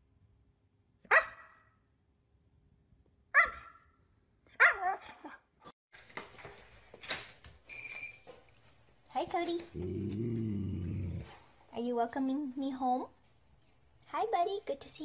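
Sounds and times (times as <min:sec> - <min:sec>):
dog barking calls: 0:01.1 - 0:01.6, 0:03.4 - 0:03.8.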